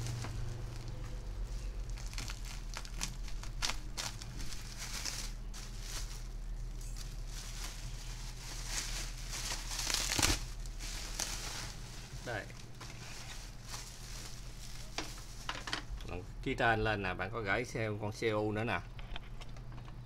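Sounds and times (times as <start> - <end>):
bubble wrap crinkling: 0.0 - 15.9.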